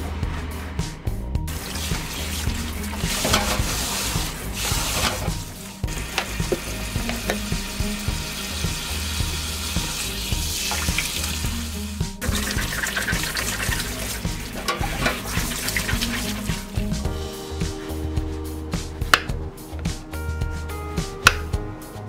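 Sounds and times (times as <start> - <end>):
background music: 0.0 - 22.0
tap water splashing into steel bowl: 6.1 - 7.6.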